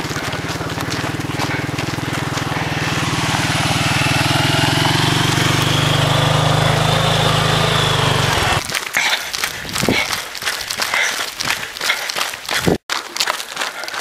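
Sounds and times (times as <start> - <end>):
small engine droning: 0.0 - 8.6.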